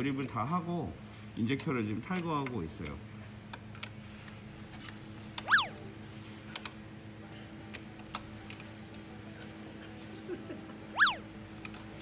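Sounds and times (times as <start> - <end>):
steady low hum: 4.1 - 12.0
cartoon boing: 5.5 - 5.8, 11.0 - 11.2.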